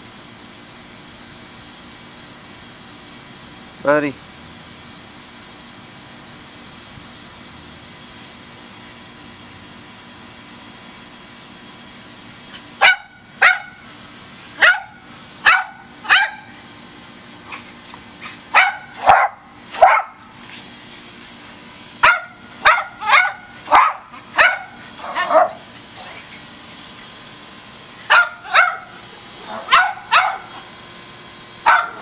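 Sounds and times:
dogs barking: 0:12.8 - 0:13.8, 0:14.6 - 0:16.5, 0:18.4 - 0:20.3, 0:22.0 - 0:26.2, 0:28.0 - 0:30.6, 0:31.6 - 0:32.0.

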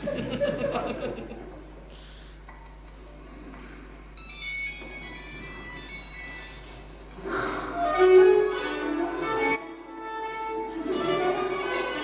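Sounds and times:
audience laughter: 0:00.0 - 0:01.6
violin over speakers: 0:07.7 - 0:12.0.

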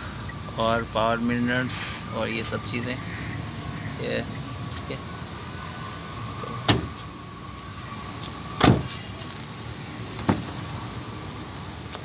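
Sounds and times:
car door shutting: 0:06.4 - 0:07.0, 0:08.6 - 0:09.0, 0:10.2 - 0:10.6.

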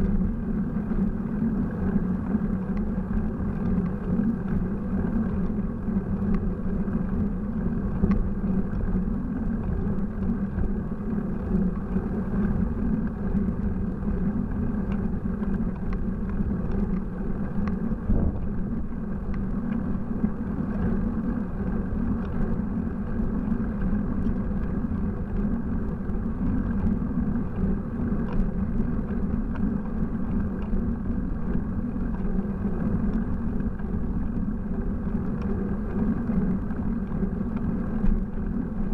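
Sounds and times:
wind noise: 0:09.6 - 0:21.8
road rumble: 0:17.9 - 0:19.3.

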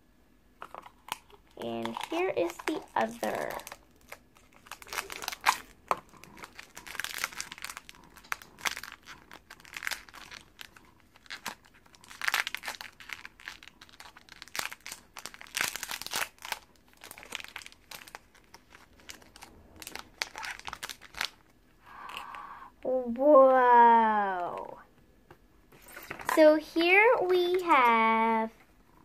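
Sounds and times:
plastic bag crackling and tearing: 0:00.6 - 0:21.5.

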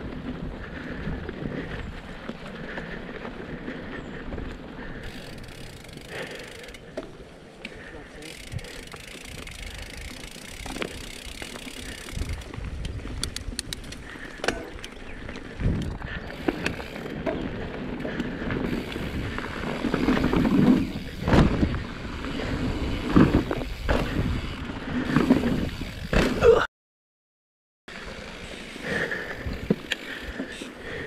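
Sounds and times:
bike rattling and knocking: 0:00.0 - 0:26.6
bike tyres on dirt and gravel: 0:00.0 - 0:26.6, 0:27.9 - 0:31.0.

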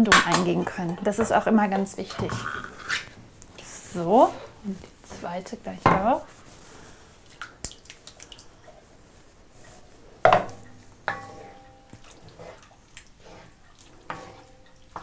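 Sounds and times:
metallic knocks against pan: 0:10.3 - 0:11.7
spatula scraping in a wok: 0:11.1 - 0:15.0.

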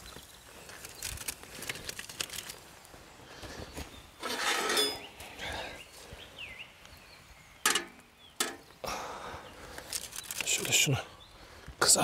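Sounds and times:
foil rustling: 0:00.5 - 0:02.7.

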